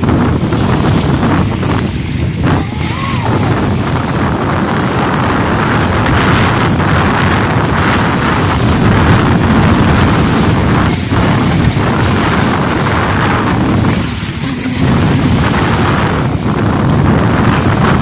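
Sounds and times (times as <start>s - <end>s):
model speedboat engine: 0.0s - 18.0s
wind buffeting microphone: 0.0s - 18.0s.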